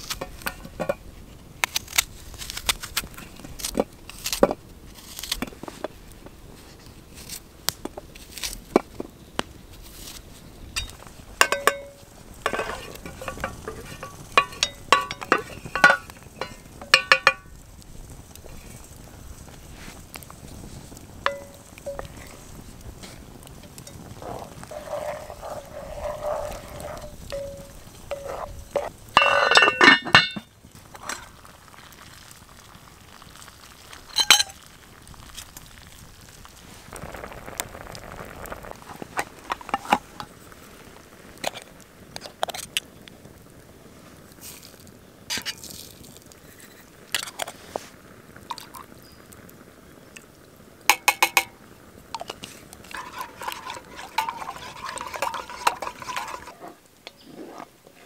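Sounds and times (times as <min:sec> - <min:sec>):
wooden spoon stirring in a pot: 0:09.8 - 0:17.6, 0:18.3 - 0:32.3, 0:52.2 - 0:58.0
metallic clinks from pots: 0:10.8 - 0:17.5, 0:21.3 - 0:22.3, 0:26.7 - 0:30.5, 0:34.1 - 0:34.6, 0:50.9 - 0:51.5, 0:52.2 - 0:56.5.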